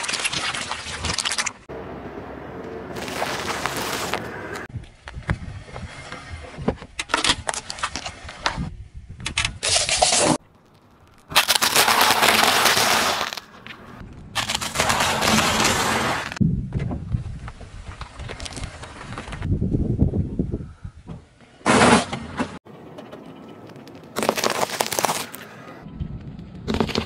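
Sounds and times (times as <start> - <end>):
tyre crushing wafer cones: 2.9 - 4.7, 9.6 - 16.4, 23.6 - 25.5
tyre rolling over gritty asphalt: 2.9 - 6.6, 10.6 - 16.4.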